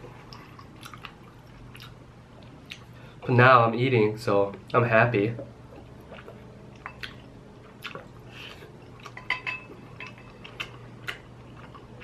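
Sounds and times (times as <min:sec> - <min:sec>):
steady low hum: 0:00.0 - 0:12.0
spoon clinking against pot: 0:09.2 - 0:10.2.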